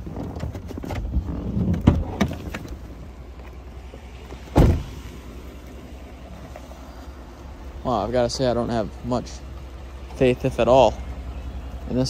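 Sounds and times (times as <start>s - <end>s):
truck engine idling: 2.0s - 12.0s
loud short thump: 4.5s - 5.0s.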